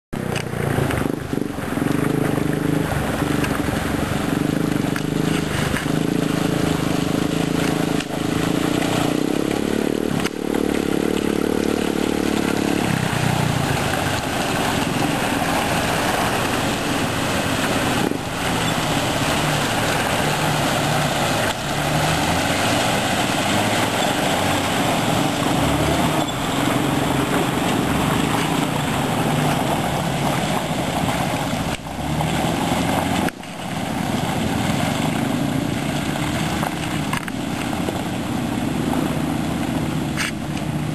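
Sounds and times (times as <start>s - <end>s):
off-road vehicle engines running: 0.2s - 40.9s.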